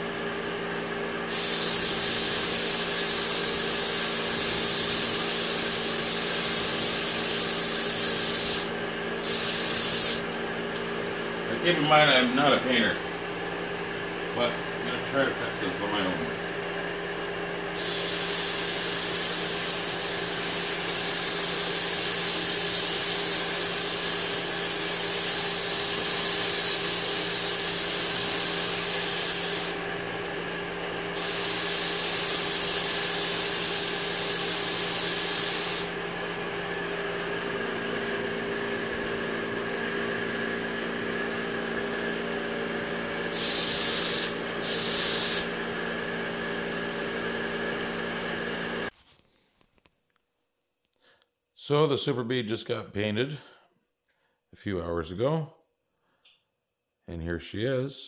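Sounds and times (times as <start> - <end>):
paint spray gun hissing: 1.3 - 10.3, 17.7 - 29.9, 31.1 - 36.0, 43.2 - 45.6.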